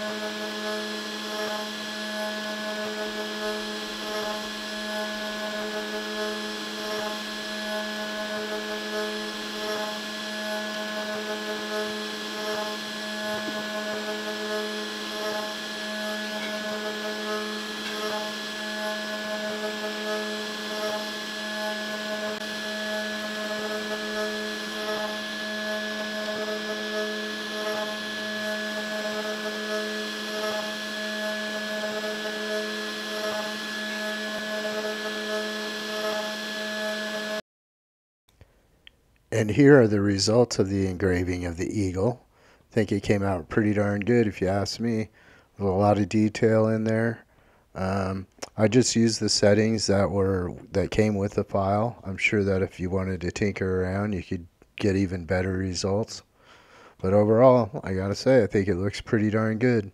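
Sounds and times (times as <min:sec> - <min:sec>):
pulsing multi-tone whine: 0:00.0 - 0:37.4
router spindle hum: 0:00.0 - 0:37.4, 0:39.3 - 0:59.9.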